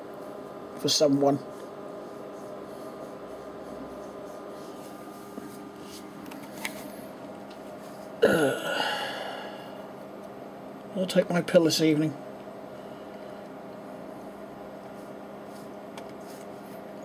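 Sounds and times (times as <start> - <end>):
electrical hum: 0.0 - 17.0
man's throaty vocal noise: 8.2 - 9.7.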